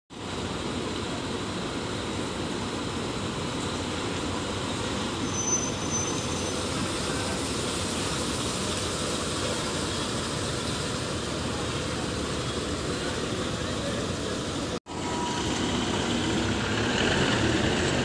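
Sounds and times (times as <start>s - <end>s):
bus diesel engine running: 0.1s - 18.0s
high-pitched squeal: 5.0s - 11.2s, 14.9s - 18.0s.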